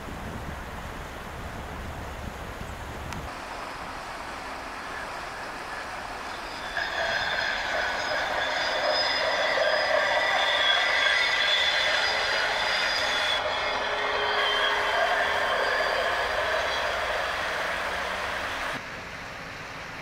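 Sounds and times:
train wheels squealing: 4.8s - 18.8s.

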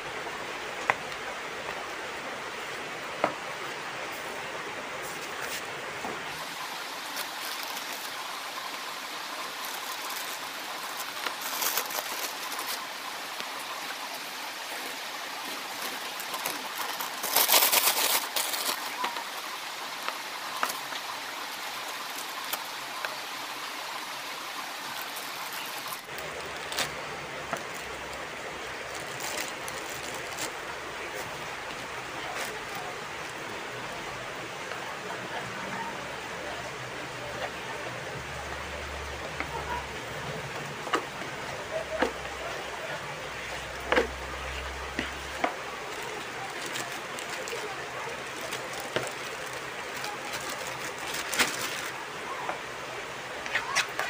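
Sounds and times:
steady background hiss: 0.0s - 54.0s
plastic bag rustling and crinkling: 6.3s - 19.7s, 24.8s - 33.4s, 41.7s - 52.1s.

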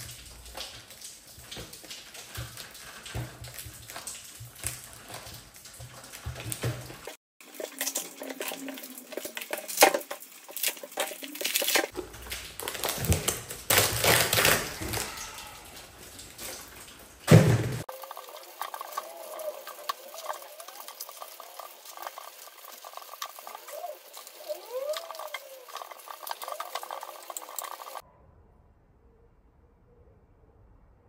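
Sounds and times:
plastic film crinkling and tearing: 7.4s - 15.1s.

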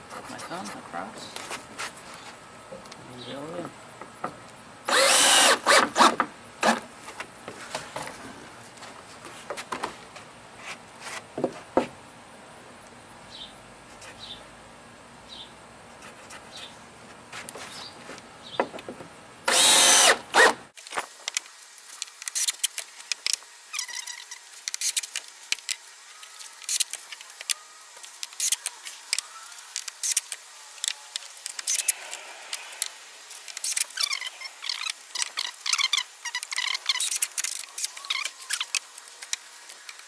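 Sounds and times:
cordless drill driving screw: 4.9s - 6.8s, 19.5s - 20.6s.

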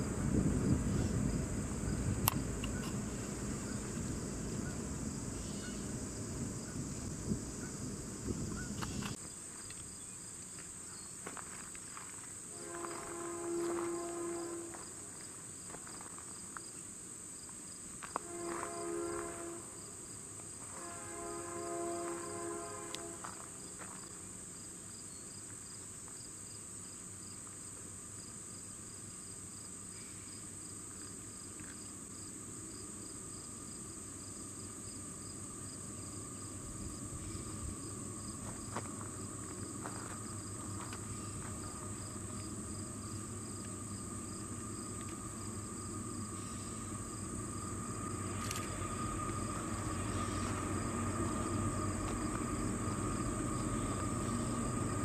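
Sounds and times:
train rumbling: 0.0s - 16.6s, 17.8s - 25.0s, 30.6s - 55.0s
crickets and insects chirping: 0.0s - 55.0s
locomotive horn: 12.5s - 14.9s, 18.2s - 20.0s, 20.6s - 23.6s.

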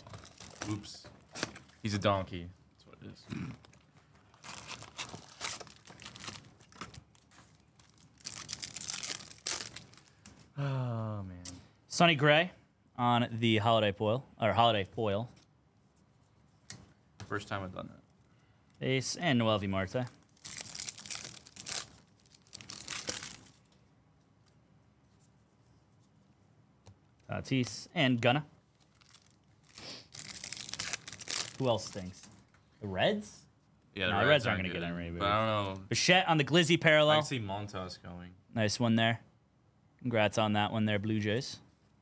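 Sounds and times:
card pack wrappers tearing: 0.0s - 1.5s, 4.3s - 10.2s, 20.3s - 23.7s, 28.8s - 32.4s.

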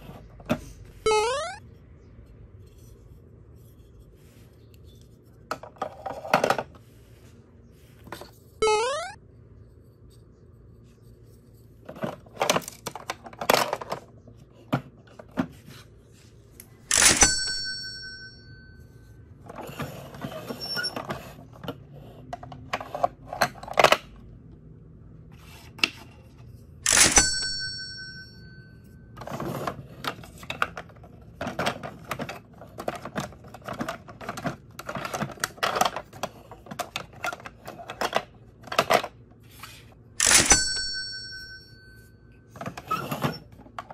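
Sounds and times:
ringing tone: 1.1s - 1.6s, 8.6s - 9.2s
plastic blocks clicking and rattling: 11.3s - 15.6s, 29.2s - 39.3s.

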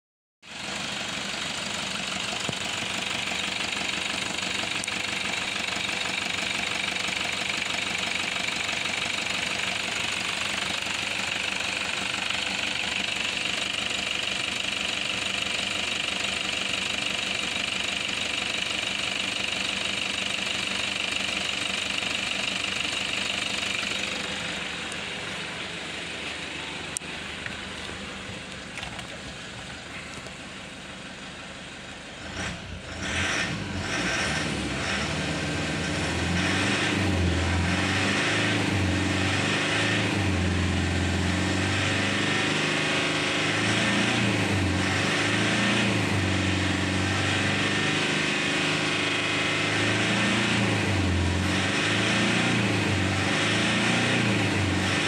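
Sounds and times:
diesel engine idling: 0.5s - 39.3s.

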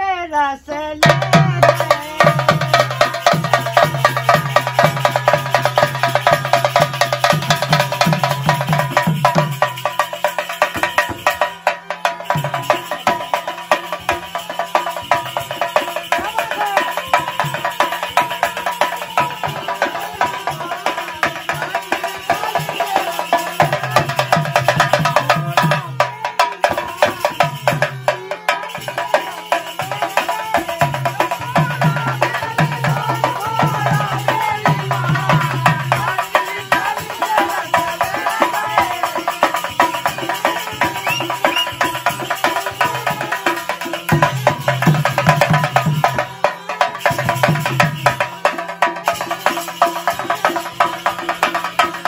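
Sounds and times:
barrel drum beating: 1.0s - 52.0s.

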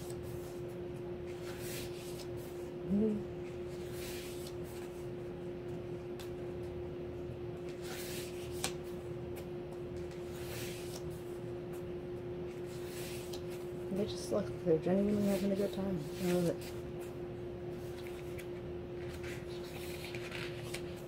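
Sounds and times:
steady hum: 0.0s - 21.0s
pages turning: 1.3s - 2.5s, 3.7s - 5.0s, 7.7s - 8.8s, 9.4s - 11.2s, 12.6s - 13.7s, 17.8s - 21.0s
person murmuring: 2.8s - 3.3s.

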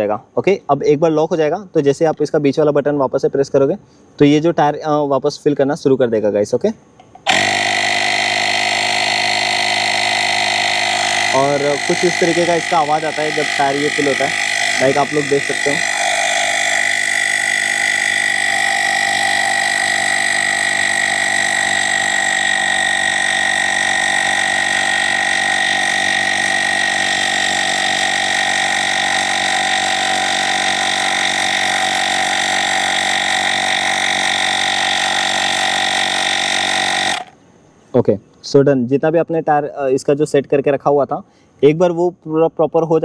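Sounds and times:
tyre inflator compressor buzzing: 7.0s - 37.4s.

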